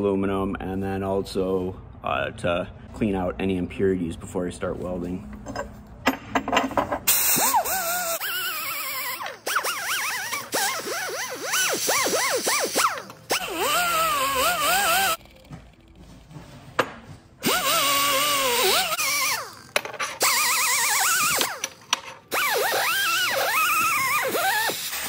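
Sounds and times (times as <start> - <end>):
power tool wire brush whining: 7.3 - 15.3, 17.4 - 21.7.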